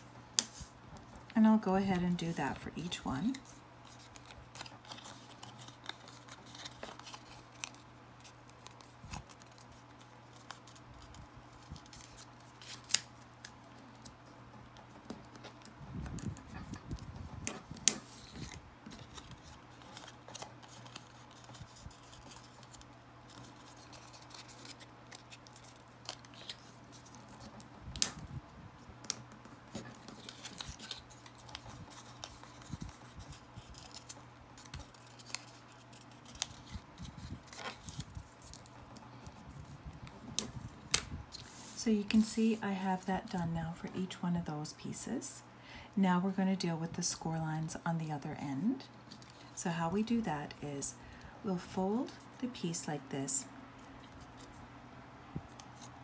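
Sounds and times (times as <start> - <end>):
paper rustling and crackling: 3.3 - 28.4, 29.0 - 41.8.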